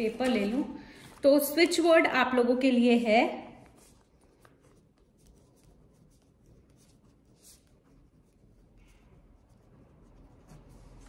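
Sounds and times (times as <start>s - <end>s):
pen scratching on paper: 3.8s - 11.0s.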